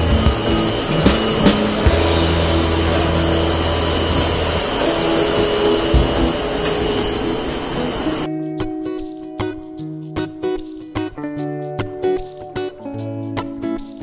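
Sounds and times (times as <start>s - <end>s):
veneer lathe mechanical din: 0.0s - 8.3s.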